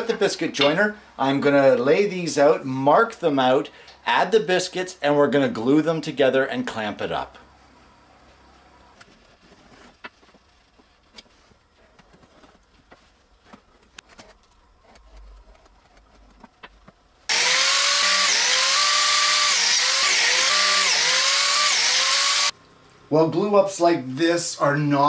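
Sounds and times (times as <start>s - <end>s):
biscuit joiner cutting wood: 17.3s - 22.5s.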